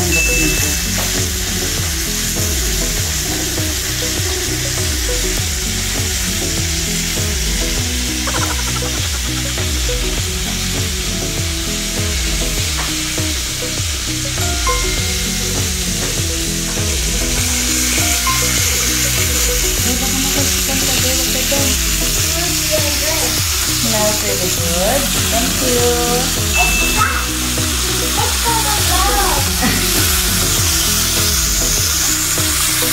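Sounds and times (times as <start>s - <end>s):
background music with steady beat: 0.0s - 32.9s
chicken sizzling in skillet: 0.0s - 32.9s.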